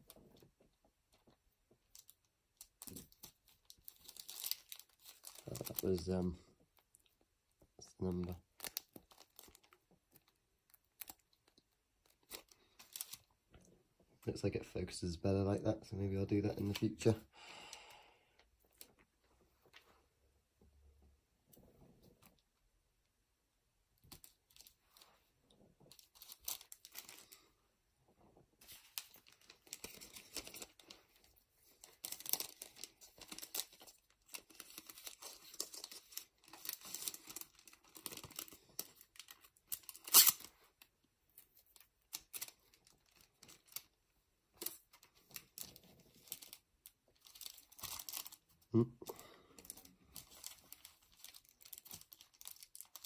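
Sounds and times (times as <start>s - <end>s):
foil and plastic bags crinkling: 1.8s - 7.1s, 7.8s - 13.3s, 25.9s - 27.5s, 28.6s - 40.7s, 44.6s - 53.0s.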